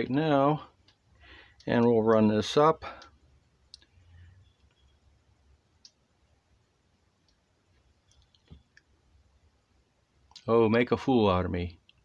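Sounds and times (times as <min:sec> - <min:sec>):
faint clicks: 0:00.8 - 0:05.0, 0:05.8 - 0:06.0, 0:07.2 - 0:08.9.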